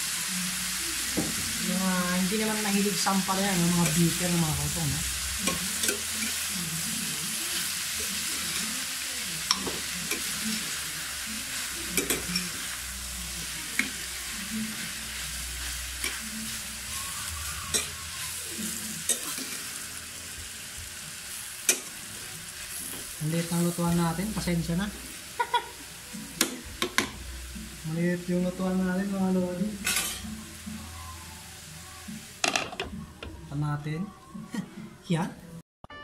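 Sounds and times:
vegetables sizzling in hot oil: 0.0s - 32.8s
metal spatula scraping pan: 29.9s - 30.2s.

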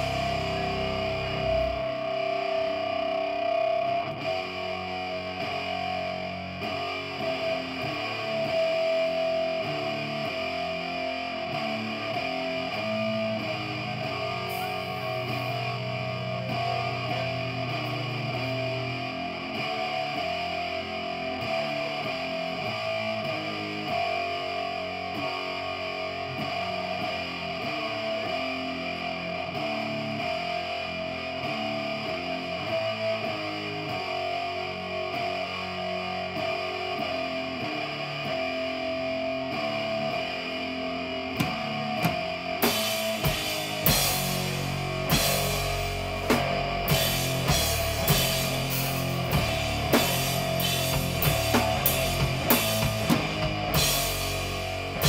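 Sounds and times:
bass guitar: 0.0s - 55.0s
distorted electric guitar: 0.0s - 55.0s
drums: 0.0s - 55.0s.

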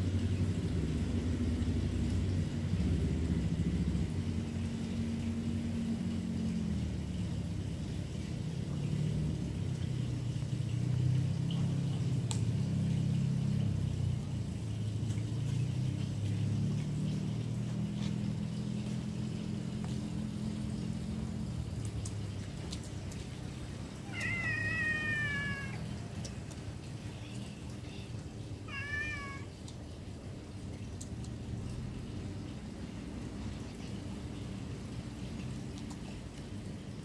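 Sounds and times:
low steady rumble: 0.0s - 37.0s
cat meowing: 24.0s - 25.9s, 28.6s - 29.5s.

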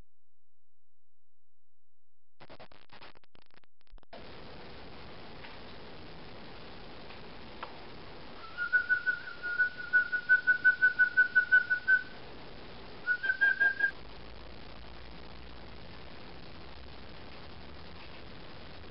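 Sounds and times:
high whistle-like chirps: 8.4s - 12.1s, 13.0s - 14.0s.

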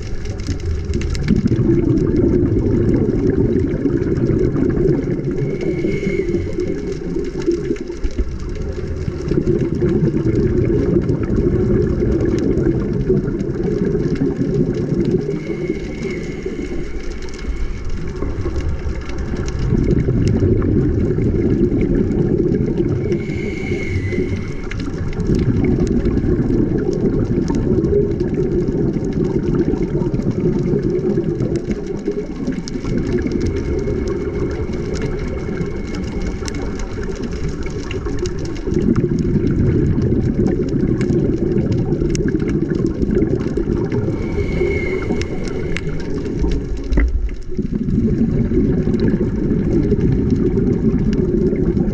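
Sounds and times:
muffled underwater rumble: 0.0s - 51.9s
faint high whistle: 23.2s - 24.7s, 44.2s - 46.2s.

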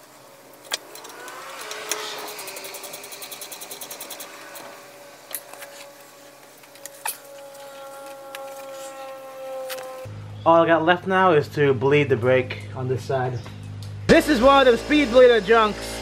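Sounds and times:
ratchet wrench clicking rapidly: 1.0s - 4.6s.

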